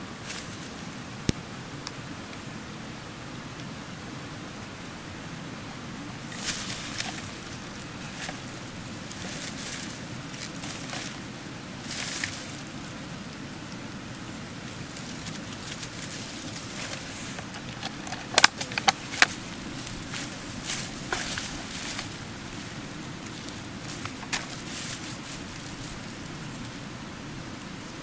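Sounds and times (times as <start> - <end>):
low background noise: 0.0 - 28.0
dry leaves rustling and crackling: 0.2 - 1.0, 6.0 - 28.0
plastic bottle crinkling: 14.8 - 26.8.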